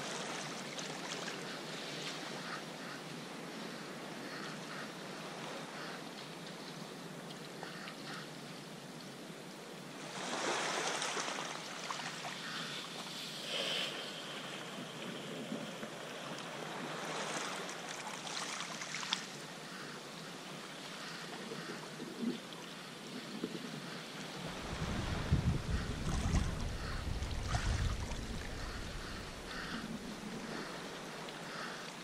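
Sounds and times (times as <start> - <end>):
water splashing around kayak: 10.0 - 13.2, 14.2 - 19.5, 23.4 - 32.0
waves surging over rocks: 24.2 - 32.0.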